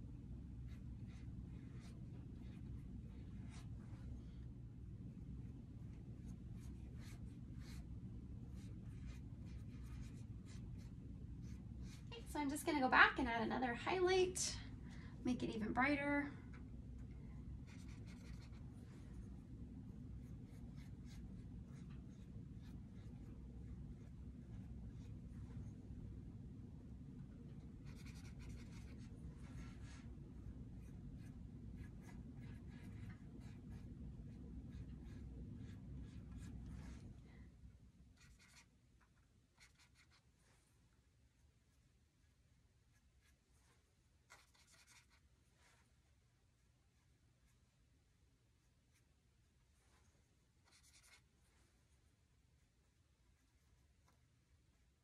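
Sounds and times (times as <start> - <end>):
low room hum: 0.0 - 55.0
brush strokes scratching on board: 0.6 - 4.4, 5.4 - 12.1, 17.6 - 25.8, 27.6 - 37.2, 38.2 - 40.7, 42.9 - 46.1, 49.8 - 51.9.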